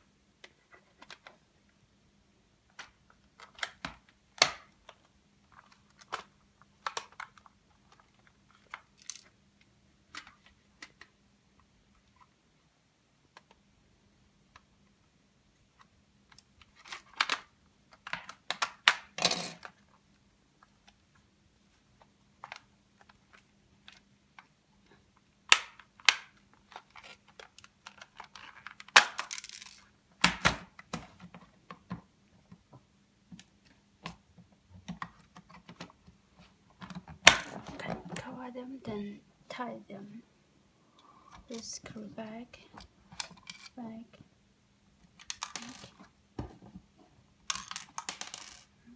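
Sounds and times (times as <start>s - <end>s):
plastic housing clicks and rattles: 2.7s - 9.4s, 45.2s - 46.1s
plastic snaps: 36.8s - 38.2s.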